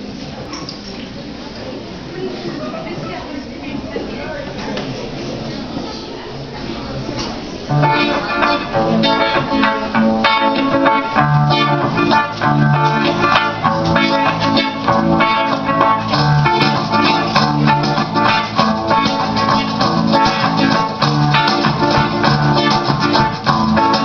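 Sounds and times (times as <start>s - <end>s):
folk dance music over loudspeaker: 7.7s - 24.0s.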